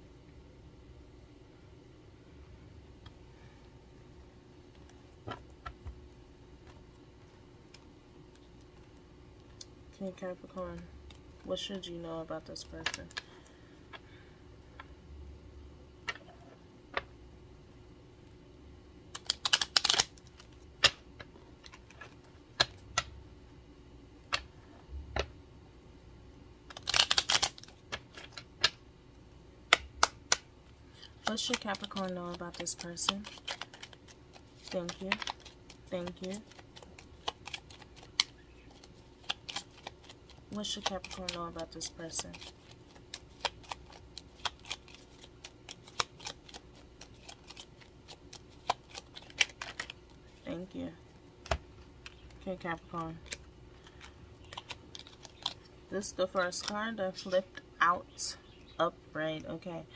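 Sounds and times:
cards being shuffled: 19.1 - 23.1, 26.7 - 28.8, 29.7 - 50.7, 51.4 - 56.8.

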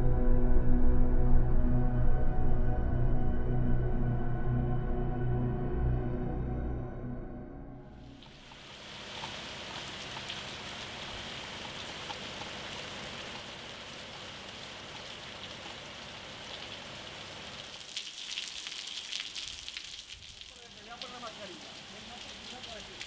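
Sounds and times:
rain falling and dripping: 8.0 - 23.0.

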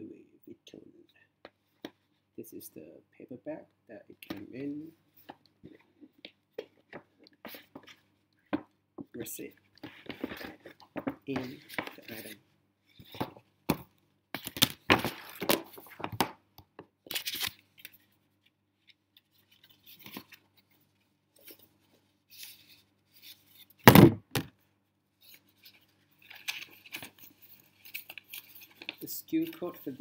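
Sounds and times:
cardboard and paper rustling: 9.8 - 13.4, 25.2 - 30.0
loud thump: 23.9 - 24.5.

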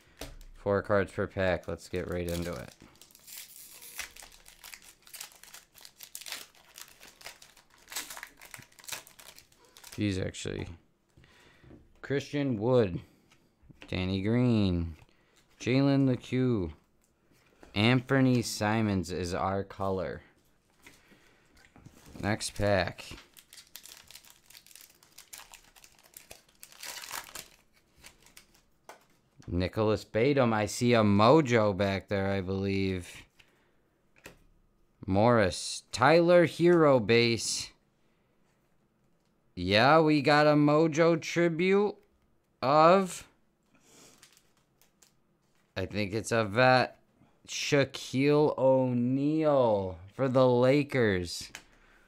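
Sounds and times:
wrapper tearing and crinkling: 1.9 - 10.1, 23.0 - 28.7, 44.1 - 45.2.

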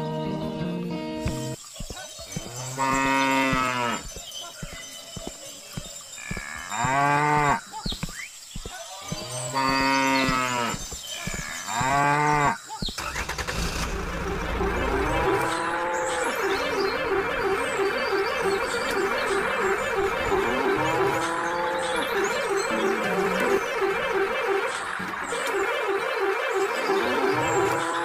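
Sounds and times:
cow mooing: 9.2 - 12.6, 20.0 - 24.2, 26.9 - 28.0.

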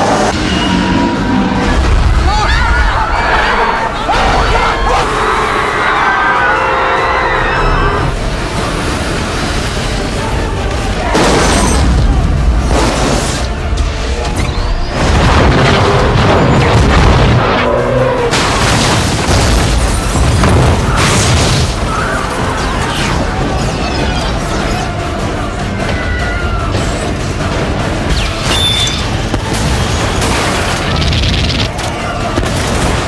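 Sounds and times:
dramatic music: 0.0 - 33.0
crashing debris: 14.9 - 17.6, 18.3 - 22.3.

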